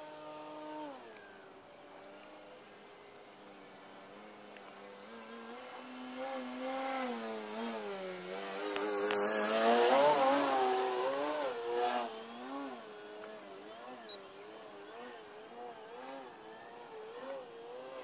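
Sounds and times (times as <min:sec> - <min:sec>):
model plane motor whine: 0:00.0 - 0:18.0.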